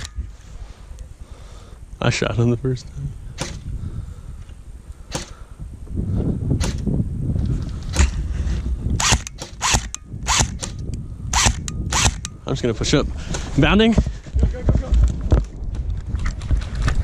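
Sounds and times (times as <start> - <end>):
airsoft gun shots: 9.0 - 12.4.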